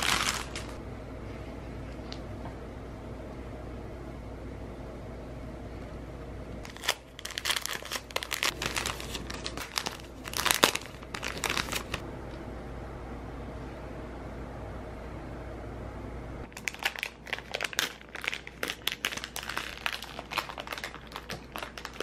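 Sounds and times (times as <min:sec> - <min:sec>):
plastic bag crinkling: 0:00.0 - 0:00.8, 0:06.6 - 0:12.0, 0:16.5 - 0:22.0.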